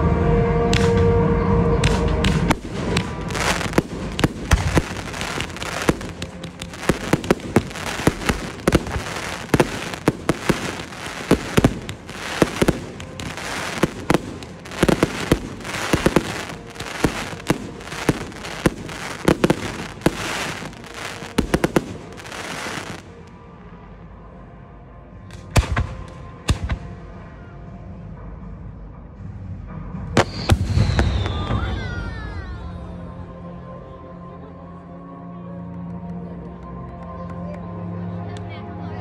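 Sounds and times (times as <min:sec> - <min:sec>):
fireworks bangs and crackles: 0:01.8 - 0:23.3, 0:25.3 - 0:27.0, 0:30.1 - 0:32.1.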